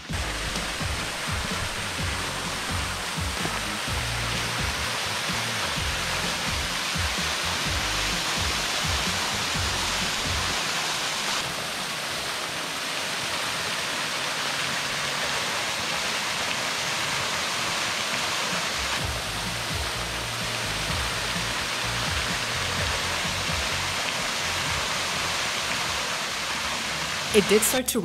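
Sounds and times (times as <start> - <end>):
waterfall rushing: 0.0 - 28.0.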